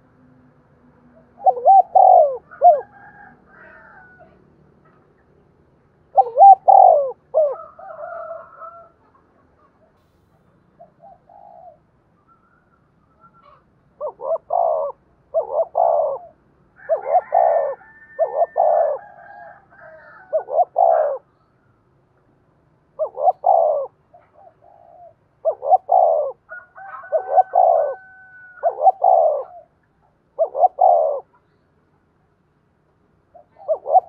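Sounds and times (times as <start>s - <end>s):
dove cooing: 1.1s - 5.2s, 6.0s - 9.0s, 10.8s - 11.9s, 13.1s - 21.4s, 22.9s - 31.5s, 33.3s - 34.0s.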